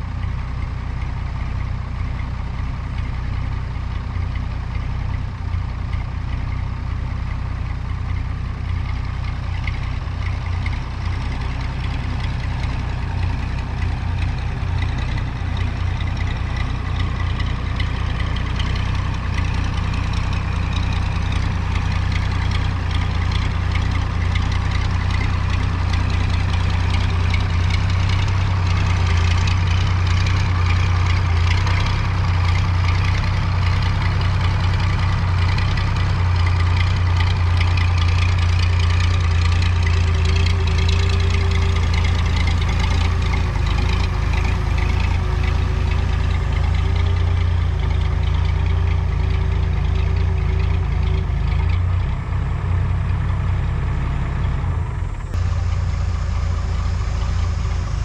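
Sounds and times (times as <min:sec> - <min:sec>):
crane engine running: 0:00.0 - 0:58.0
faint steady whine: 0:53.7 - 0:58.0.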